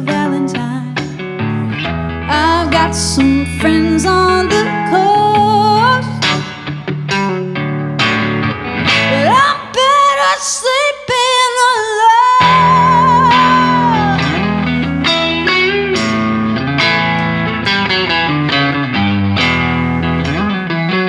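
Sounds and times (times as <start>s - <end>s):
woman singing: 0.0s - 1.2s, 2.3s - 6.3s, 9.1s - 15.6s
electric guitar chords: 0.0s - 21.0s.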